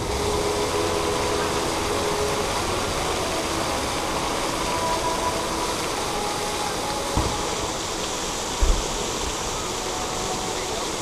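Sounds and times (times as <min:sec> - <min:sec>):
steady rushing background noise: 0:00.0 - 0:11.0
distant firework thump: 0:07.2 - 0:07.4, 0:08.6 - 0:09.0.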